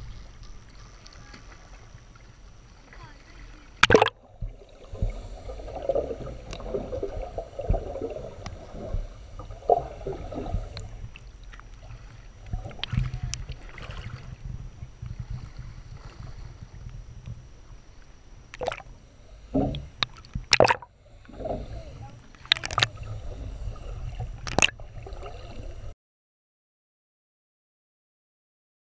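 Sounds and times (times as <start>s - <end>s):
underwater low rumble: 0.0s - 26.0s
water sloshing and gurgling: 0.0s - 26.0s
sharp splashes and knocks: 3.8s - 4.2s, 18.6s - 18.9s, 19.6s - 20.9s, 22.4s - 22.9s, 24.4s - 24.8s.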